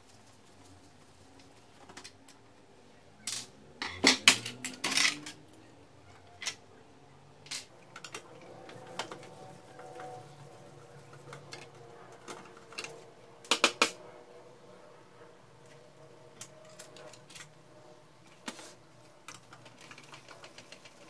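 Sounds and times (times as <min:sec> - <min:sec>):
plastic parts clicking and rattling: 0:03.2 - 0:05.6, 0:06.2 - 0:06.6, 0:07.4 - 0:10.1, 0:11.1 - 0:14.0, 0:16.4 - 0:17.6, 0:19.2 - 0:21.0.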